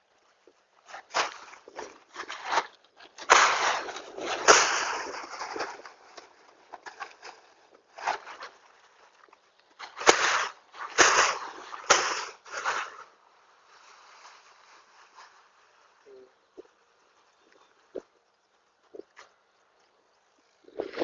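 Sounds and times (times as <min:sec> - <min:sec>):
plastic sacks crinkling and rustling: 0:00.2 - 0:17.9
sharp crack: 0:00.9 - 0:08.7, 0:09.7 - 0:13.1.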